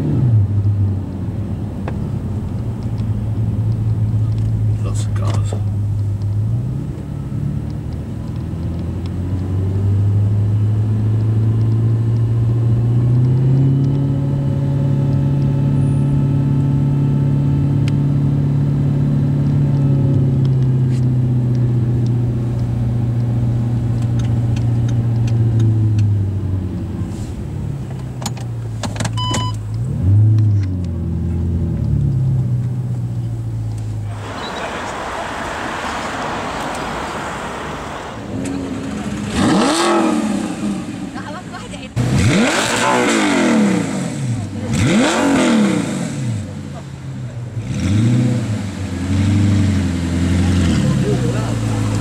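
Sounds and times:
car engine at low revs: 0.0 - 52.0
engine throttle blip: 29.1 - 29.8, 33.7 - 41.3.

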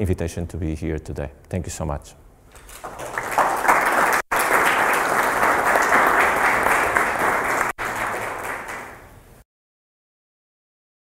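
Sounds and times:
audience applauding: 2.6 - 9.1.

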